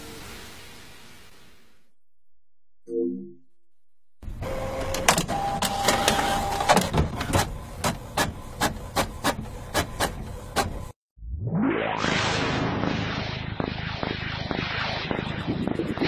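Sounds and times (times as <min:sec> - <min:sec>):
printer motors whirring: 0:04.2 - 0:10.9
printer mechanism clattering: 0:04.5 - 0:10.9.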